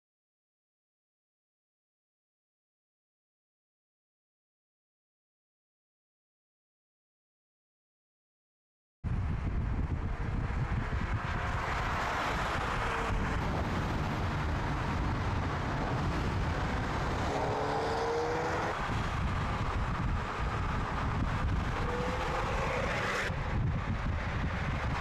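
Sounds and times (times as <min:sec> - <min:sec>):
tyre and wind noise: 0:09.0 - 0:25.0
car engine at speed: 0:09.1 - 0:25.0.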